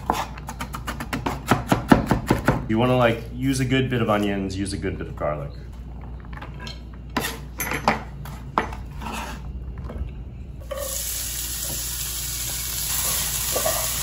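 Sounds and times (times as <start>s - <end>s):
knife scraping on cutting board: 0.0s - 0.8s, 8.7s - 9.6s
onion sizzling in hot oil: 10.6s - 14.0s.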